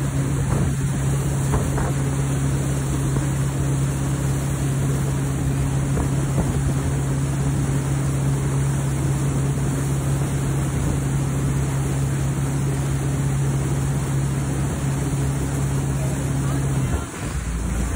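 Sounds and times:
wind on microphone: 0.0s - 3.8s, 4.5s - 11.7s
boat engine humming: 0.0s - 17.9s
churning boat wake: 0.0s - 17.9s.

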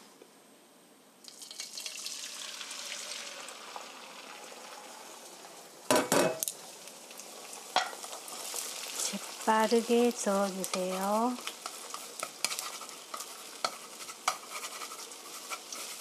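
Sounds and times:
eggs sizzling in oil: 1.2s - 16.0s
dishes clattering: 5.9s - 6.4s.

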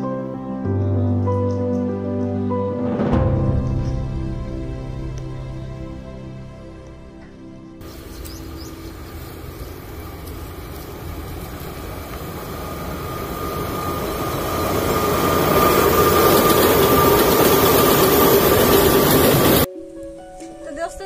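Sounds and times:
high whine: 7.8s - 19.7s
train wheels rumbling on rails: 7.8s - 19.7s.

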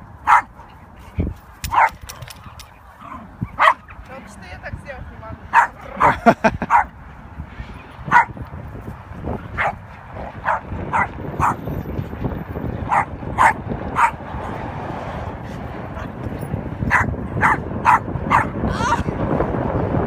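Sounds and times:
dogs yipping: 0.3s - 0.5s, 1.6s - 4.0s, 5.5s - 6.9s, 10.4s - 11.6s, 12.8s - 14.2s, 16.9s - 18.6s.

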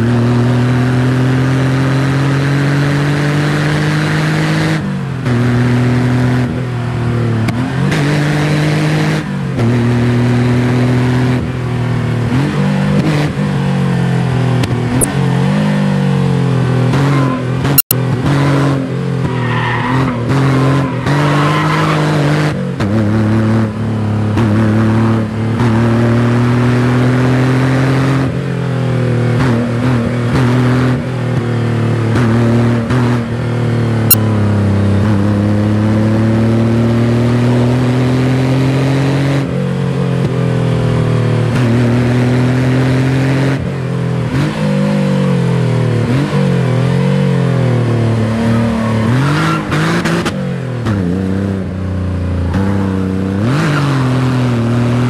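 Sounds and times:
car engine revving hard: 41.5s - 51.7s, 52.4s - 55.0s.

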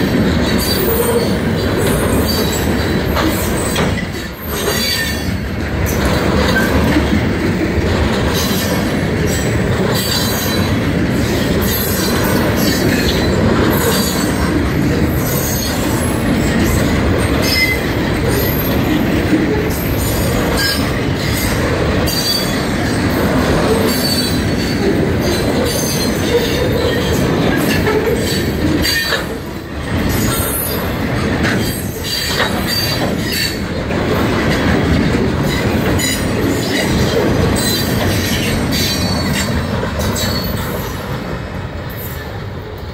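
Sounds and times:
steel wheels rumbling on rail: 0.0s - 42.9s
wheels clacking over rail joints: 0.0s - 42.9s
high metallic wheel squeals: 0.6s - 5.4s, 35.5s - 41.0s.

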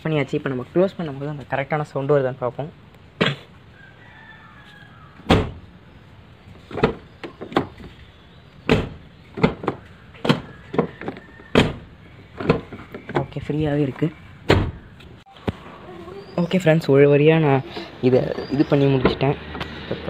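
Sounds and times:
car door shutting: 5.2s - 5.6s, 8.6s - 13.3s, 14.5s - 14.9s.

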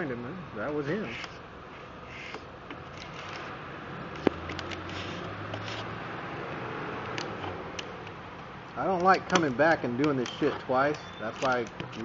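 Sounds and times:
scraper rubbing foil tape: 2.1s - 3.5s, 4.8s - 5.9s
sharp click: 9.0s - 12.0s.

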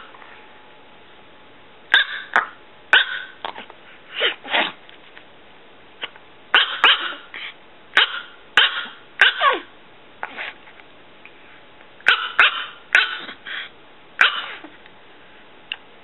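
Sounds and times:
small dog yapping: 1.9s - 3.4s, 4.1s - 4.8s, 6.5s - 7.4s, 8.0s - 10.6s, 12.0s - 13.4s, 14.2s - 14.7s.

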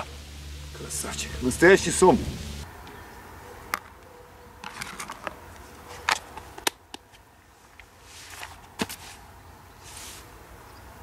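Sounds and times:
soft rustles: 7.6s - 10.3s.

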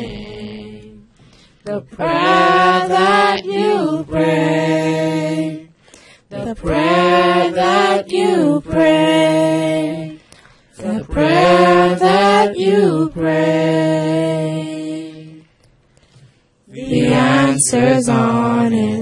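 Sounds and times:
person singing unaccompanied: 16.7s - 19.0s.

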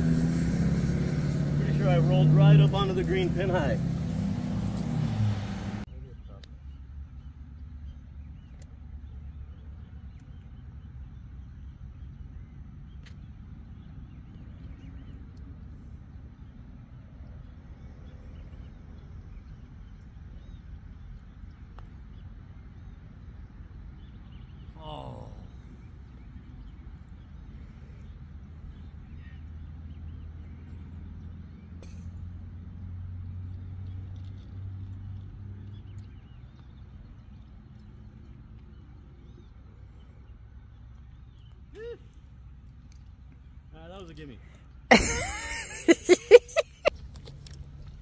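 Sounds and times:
vehicle motor humming: 0.0s - 5.9s, 44.9s - 48.0s
unsteady low rumble: 0.0s - 24.2s.

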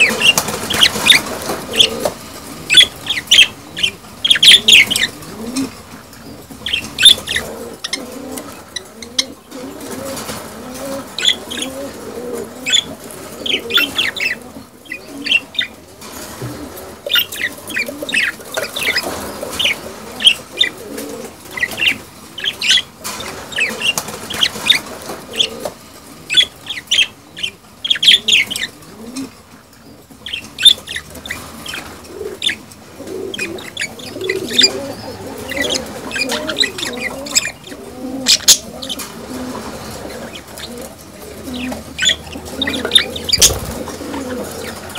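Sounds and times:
budgies chirping: 0.0s - 25.7s, 26.3s - 44.9s.

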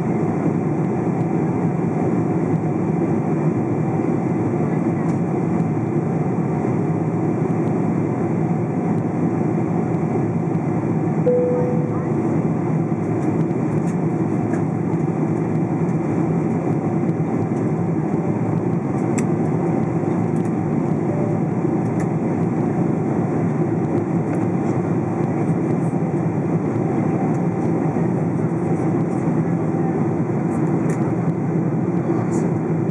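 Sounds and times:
aircraft cabin engine rumble: 0.0s - 32.9s
faint steady hum: 11.3s - 12.2s.

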